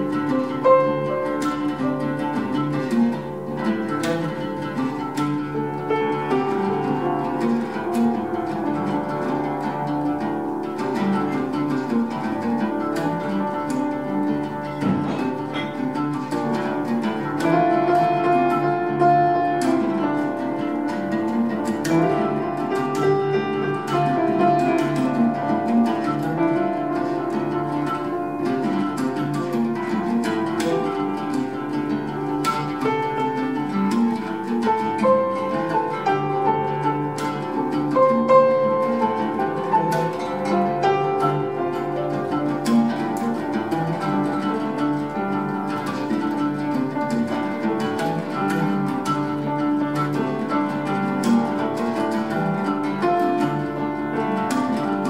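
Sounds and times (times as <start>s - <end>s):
oud plucking: 0.0s - 55.0s
piano playing: 0.0s - 55.0s.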